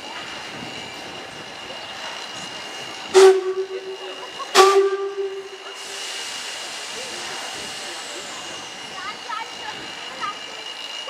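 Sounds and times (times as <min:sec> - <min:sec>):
steam whistle blasts: 0:03.1 - 0:06.1
steam hiss burst: 0:04.4 - 0:09.0.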